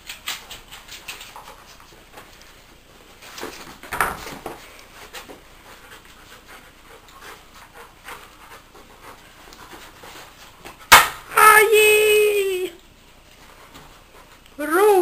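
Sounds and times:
dog panting: 0:05.0 - 0:10.8.

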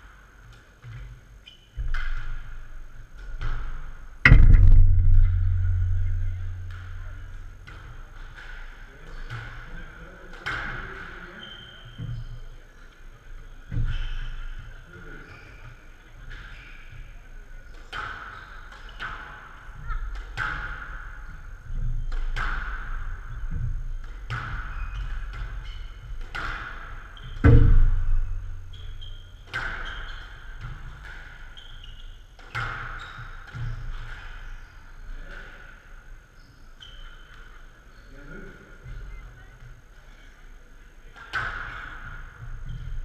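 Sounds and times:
squash ball knocking off walls: 0:01.8 - 0:07.9, 0:27.4 - 0:29.8
heavy thud against wall: 0:04.3 - 0:07.8, 0:27.4 - 0:29.0.

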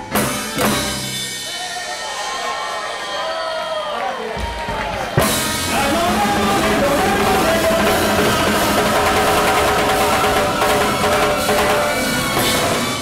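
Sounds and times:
timbales and drum kit: 0:00.0 - 0:03.0, 0:04.3 - 0:13.0
brass sustained notes: 0:05.2 - 0:13.0.

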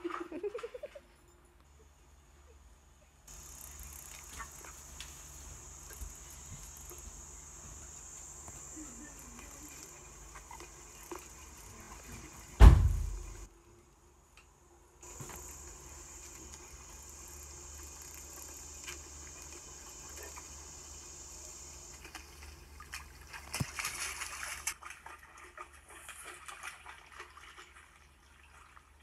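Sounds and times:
high-pitched insect chirring: 0:03.3 - 0:10.0
loud low thump: 0:12.6 - 0:13.4.

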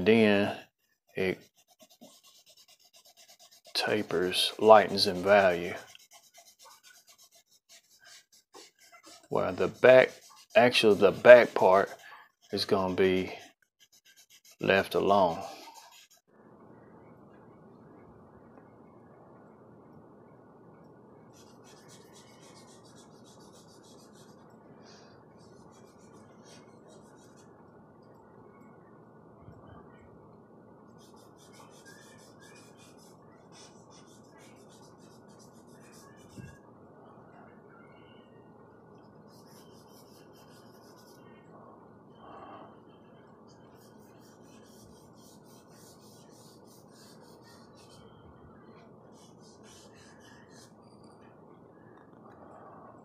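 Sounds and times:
charcoal scratching on paper: 0:00.8 - 0:16.3, 0:21.4 - 0:24.4, 0:31.0 - 0:36.6, 0:39.3 - 0:41.2, 0:43.6 - 0:48.0, 0:49.1 - 0:50.8.

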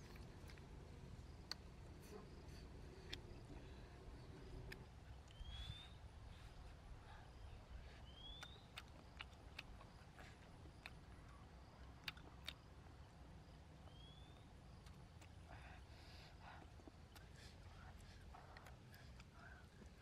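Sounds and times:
bird whistle rising: 0:05.3 - 0:06.0, 0:13.9 - 0:14.4.

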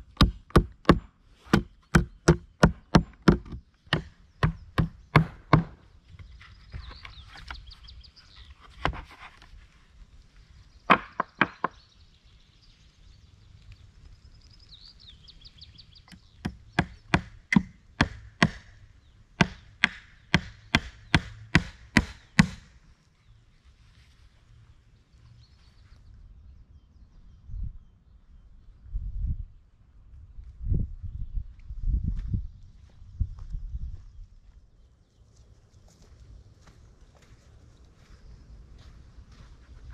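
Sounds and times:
hammer nailing wood: 0:00.2 - 0:05.8, 0:16.4 - 0:18.8, 0:19.4 - 0:22.7.

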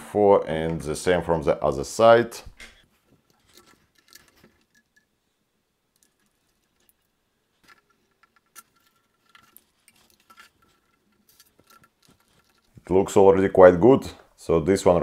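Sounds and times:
plastic parts clicking and tapping: 0:05.9 - 0:12.9.

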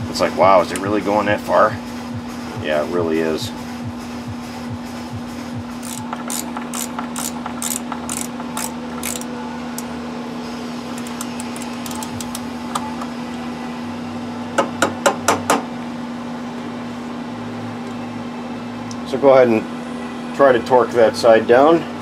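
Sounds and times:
steady hum: 0:00.0 - 0:22.0
hand tool metallic clicks: 0:05.8 - 0:09.9, 0:11.0 - 0:12.4.

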